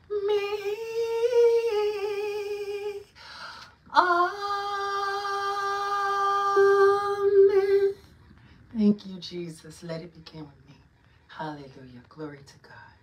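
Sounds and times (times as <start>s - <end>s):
woman singing unaccompanied: 0.0s - 3.2s, 3.9s - 8.1s.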